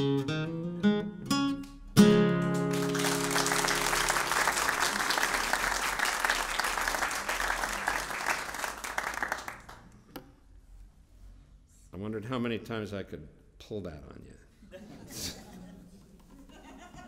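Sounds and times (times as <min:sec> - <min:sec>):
audience applauding: 0:02.6 - 0:10.0.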